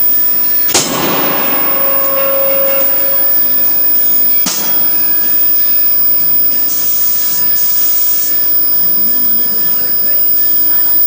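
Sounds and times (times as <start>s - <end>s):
sharp knock: 0.7s - 3.5s
loud machine roar: 0.7s - 4.5s.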